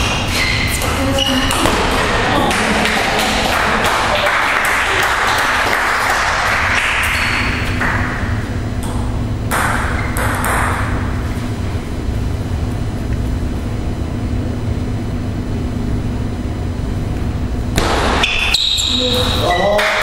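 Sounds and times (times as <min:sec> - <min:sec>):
table tennis ball bouncing: 0:00.0 - 0:05.5, 0:06.8 - 0:11.1.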